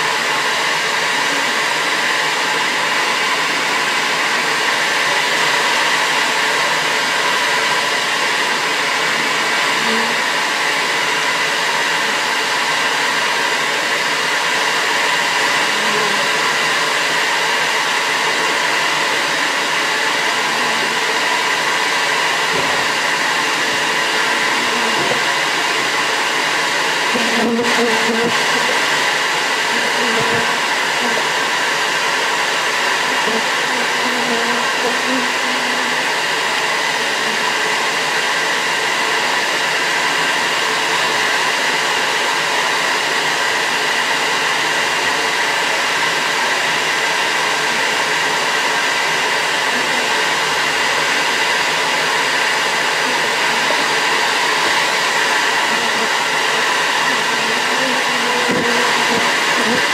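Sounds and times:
vacuum suction motor running: 0.0 - 59.9
bees buzzing: 9.7 - 10.3, 15.5 - 16.6, 22.0 - 26.4, 27.0 - 31.6, 33.0 - 36.2, 53.0 - 59.9.

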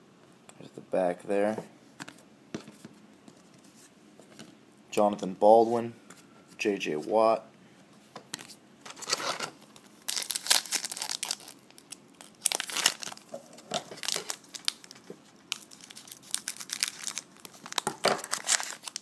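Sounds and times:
card wrapper crinkling and tearing: 8.4 - 19.0.

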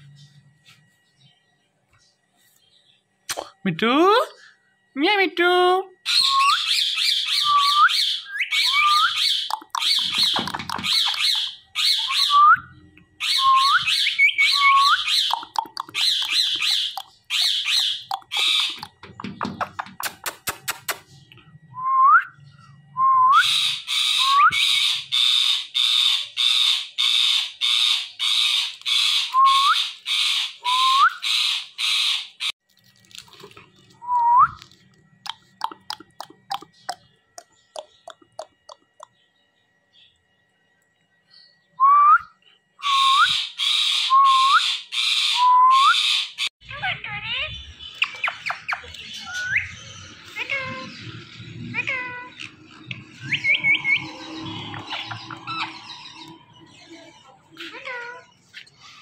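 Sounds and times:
parakeet screeching: 6.1 - 12.4, 13.2 - 19.0, 23.4 - 30.6, 46.0 - 58.4
sharp clicks: 18.0 - 21.1.

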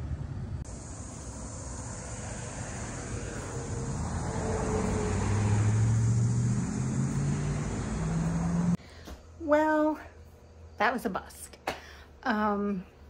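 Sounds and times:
motor vehicle engine hum: 0.0 - 8.8.

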